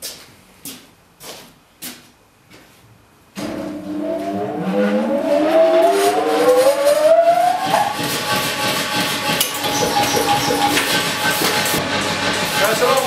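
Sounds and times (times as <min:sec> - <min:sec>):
power hammer motor whine: 0:03.4 - 0:08.1.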